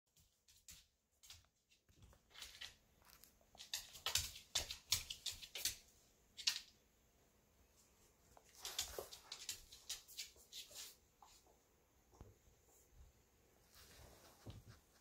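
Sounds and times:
dog claws clicking on hardwood floor: 0.5s - 6.8s, 8.4s - 10.8s.

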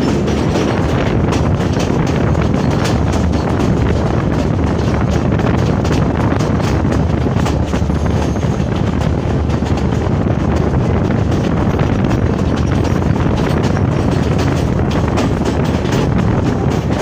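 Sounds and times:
train carriages rumbling: 0.0s - 17.0s
wind buffeting microphone: 0.0s - 17.0s.

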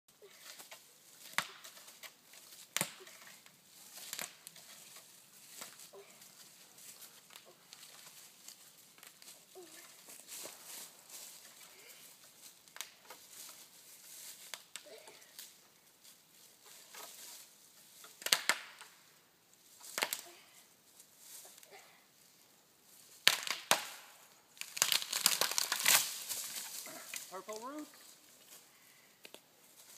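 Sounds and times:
dry wood and leaves crackling: 0.2s - 22.0s, 22.8s - 29.9s
tree cracking and snapping: 18.2s - 18.9s, 19.9s - 20.2s, 23.2s - 24.0s, 24.6s - 27.3s.

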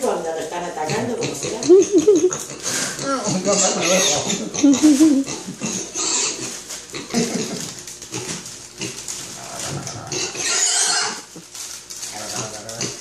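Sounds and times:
pig grunting and squealing: 0.8s - 11.4s, 12.1s - 13.0s.

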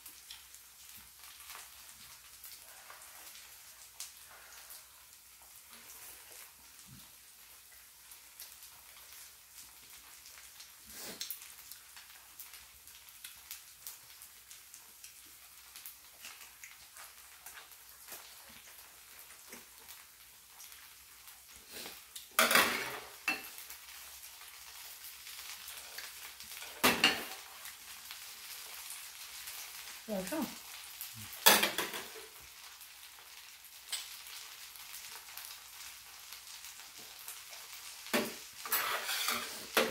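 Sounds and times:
batter sizzling on griddle: 0.0s - 39.9s
tableware clattering: 31.5s - 32.2s, 38.2s - 39.9s.

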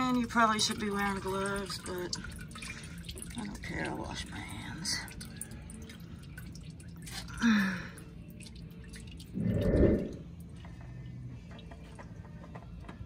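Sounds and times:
oil dripping into pan: 0.0s - 9.4s.

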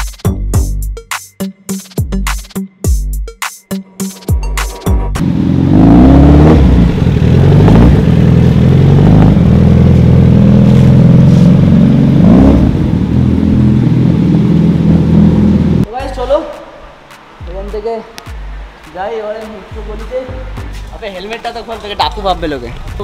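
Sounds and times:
motorcycle engine revving: 5.1s - 15.9s.

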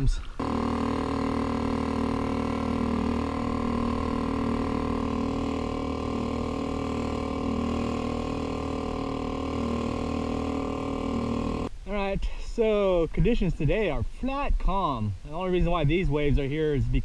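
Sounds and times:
outboard motor running: 0.0s - 11.7s.

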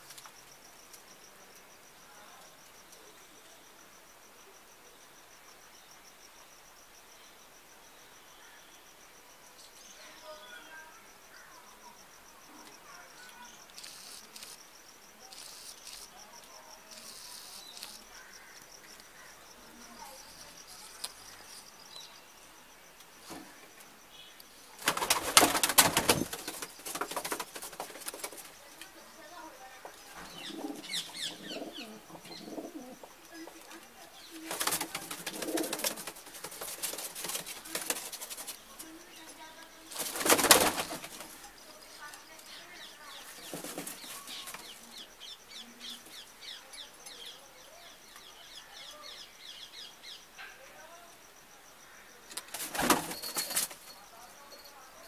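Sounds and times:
pigeon wingbeats: 24.7s - 29.0s, 30.2s - 39.2s, 39.8s - 41.5s, 43.2s - 44.8s, 52.3s - 54.0s
pigeons cooing: 30.2s - 33.6s, 34.4s - 36.8s.

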